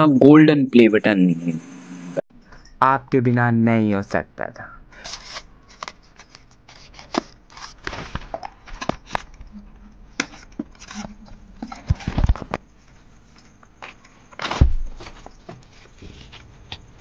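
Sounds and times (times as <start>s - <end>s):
knife slitting packing tape: 5.0s - 7.8s.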